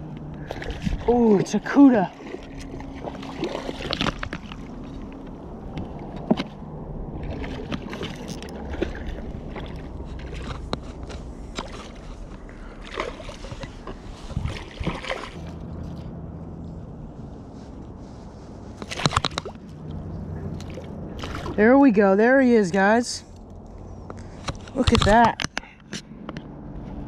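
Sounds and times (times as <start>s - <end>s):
water lapping against kayak hull: 0.1s - 16.1s, 18.0s - 22.1s
small splashes: 0.4s - 5.2s, 7.2s - 10.7s, 11.5s - 16.0s, 18.8s - 21.7s.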